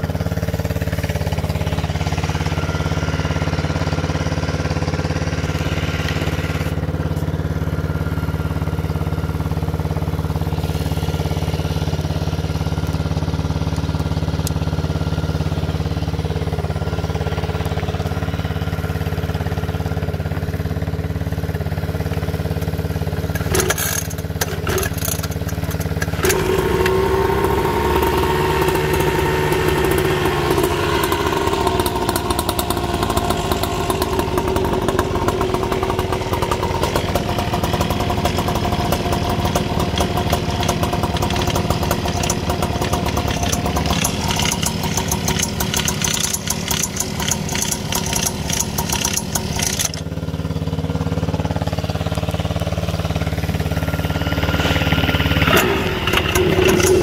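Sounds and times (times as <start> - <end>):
small motorbike engine idling: 0.0 - 57.0
engine knocks: 21.3 - 57.0.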